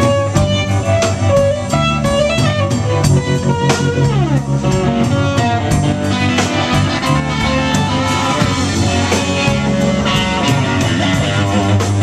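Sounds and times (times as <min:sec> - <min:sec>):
electric guitar lead line: 0:00.0 - 0:12.0
rock band playing: 0:00.0 - 0:12.0.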